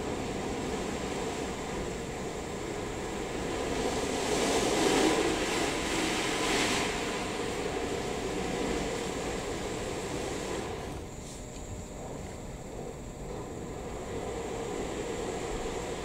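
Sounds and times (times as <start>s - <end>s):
car wash machine running: 0.0s - 11.4s.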